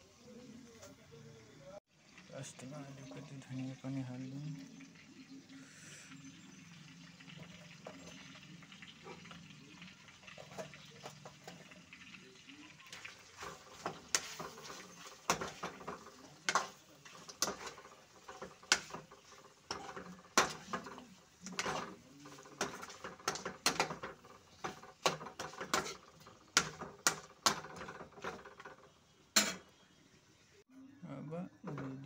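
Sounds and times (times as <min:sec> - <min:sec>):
curry sizzling: 0:00.0 - 0:30.7
metal ladle scraping pan: 0:12.9 - 0:28.8.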